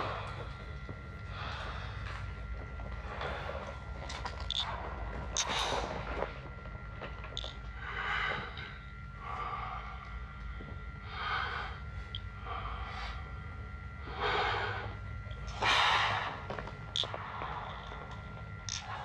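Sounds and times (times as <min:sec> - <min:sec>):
faint steady whine: 0:00.0 - 0:19.0
steady low hum: 0:00.0 - 0:19.0
man breathing through a mask: 0:07.8 - 0:16.5.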